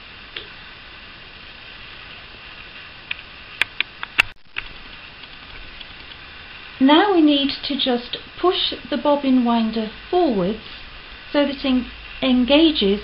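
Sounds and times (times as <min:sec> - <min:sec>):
background hiss: 0:00.0 - 0:13.0.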